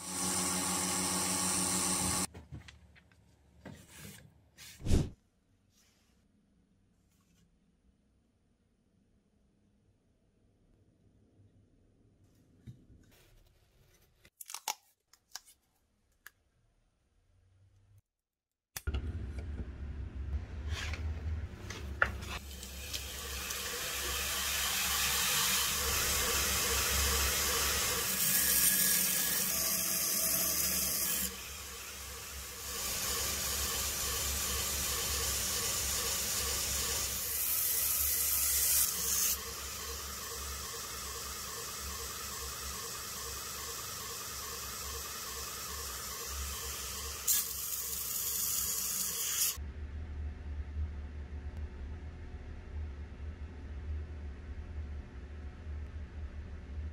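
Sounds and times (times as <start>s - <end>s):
grinder motor hum: 0.0s - 2.3s
belt grinder grinding knife blade: 45.8s - 49.6s.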